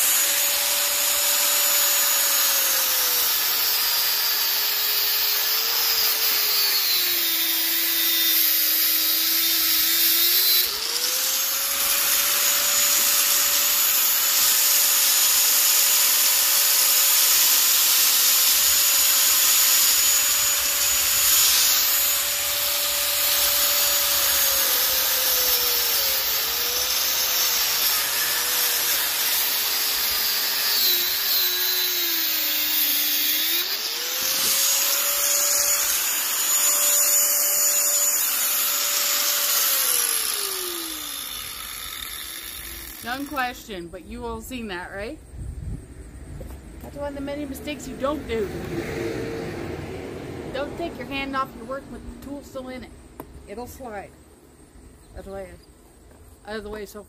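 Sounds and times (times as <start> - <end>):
angle grinder cutting metal: 0.0 - 43.8.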